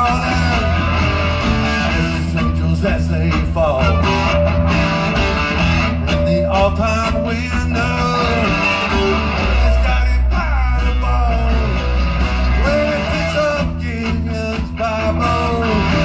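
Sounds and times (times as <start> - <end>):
bass guitar: 0.0 - 16.0
drums: 0.0 - 16.0
electric guitars: 0.0 - 16.0.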